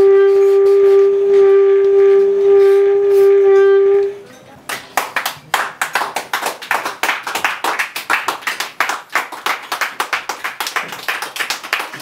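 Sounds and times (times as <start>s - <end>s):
audience clapping: 4.7s - 12.0s.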